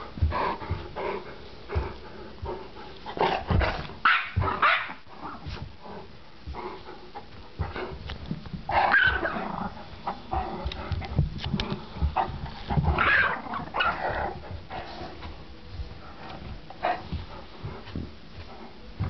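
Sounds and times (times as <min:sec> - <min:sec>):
thumps and scuffles: 0:03.2 - 0:04.6, 0:10.4 - 0:19.0
dogs growling and barking: 0:08.7 - 0:14.9.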